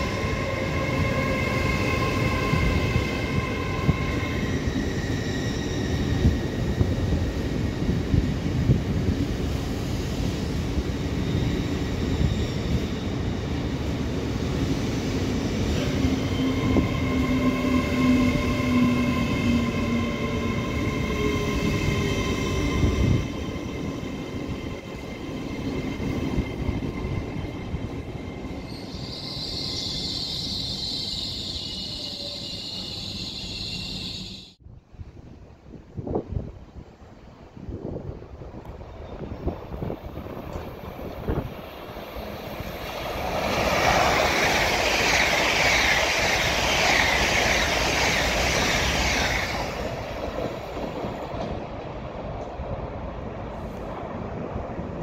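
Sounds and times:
train traction whine: 0.0 - 34.6
train wheels rumbling on rail: 37.8 - 55.0.

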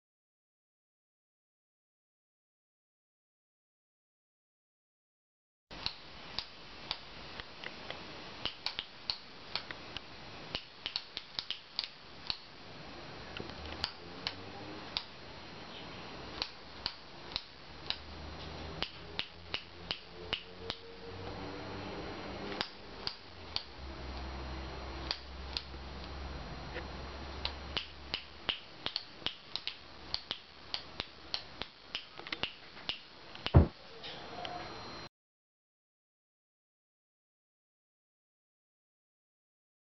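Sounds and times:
loud knock: 33.5 - 33.7.

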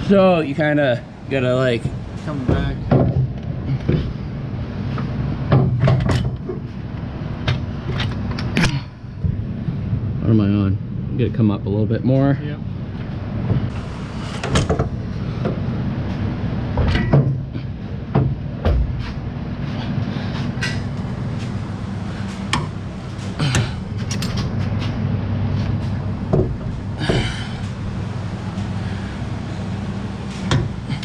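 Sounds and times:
steady low hum: 0.0 - 31.0
metal knocks and clunks: 1.8 - 4.2, 5.0 - 6.7, 16.7 - 17.5, 18.1 - 19.2, 26.3 - 27.4, 30.4 - 30.9.

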